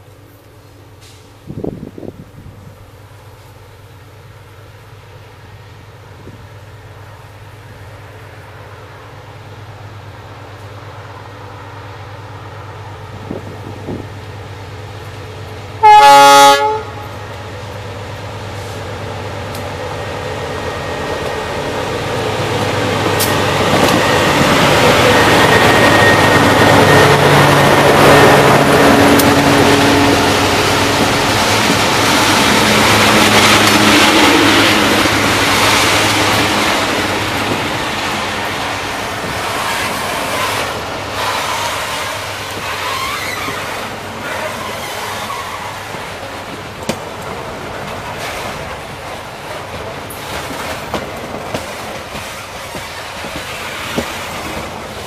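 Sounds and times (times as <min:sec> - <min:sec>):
locomotive horn blast: 0:15.8 - 0:17.2
locomotive engines passing: 0:16.8 - 0:55.0.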